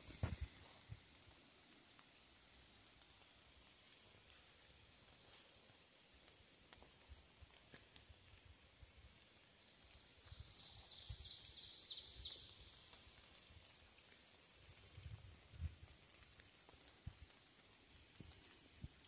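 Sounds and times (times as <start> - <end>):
soft footsteps on trail: 0.0 - 1.1, 10.2 - 19.0.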